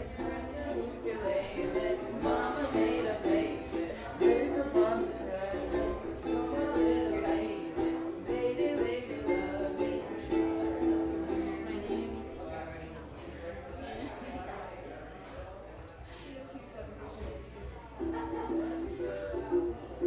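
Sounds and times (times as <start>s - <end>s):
acoustic guitar strummed and picked: 0.0s - 12.3s.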